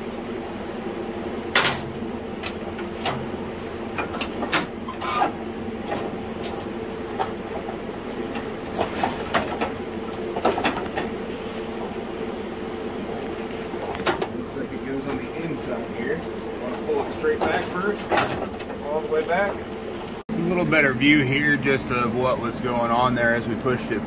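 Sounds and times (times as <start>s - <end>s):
steady low hum: 0.0s - 24.0s
metal clanks and knocks: 1.5s - 6.6s, 7.2s - 11.2s, 17.0s - 18.8s.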